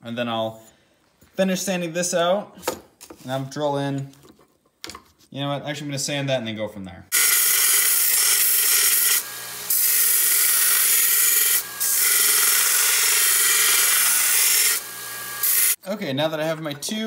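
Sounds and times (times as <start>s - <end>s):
belt sander grinding steel: 7.1s - 15.8s.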